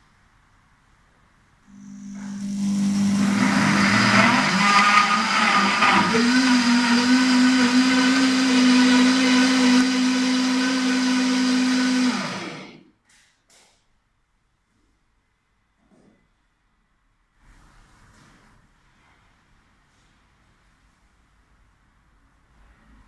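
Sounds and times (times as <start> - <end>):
blender motor chopping vegetables: 1.7 - 12.8.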